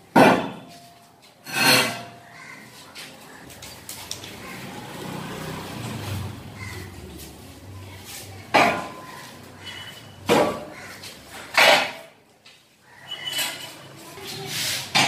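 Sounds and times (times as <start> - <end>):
loud metallic clangs: 0.1 - 0.7
steel frame scraping on floor: 1.4 - 2.2.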